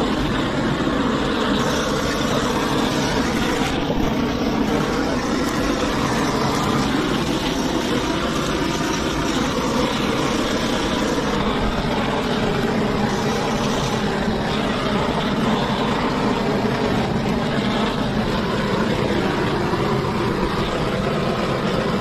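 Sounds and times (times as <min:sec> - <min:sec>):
engine-like running noise: 0:00.0 - 0:22.0.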